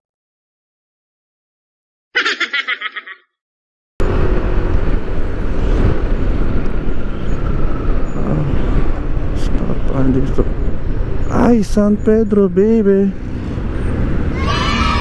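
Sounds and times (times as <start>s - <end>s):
giggling sound effect: 2.2s - 3.3s
vehicle road and engine noise: 4.0s - 15.0s.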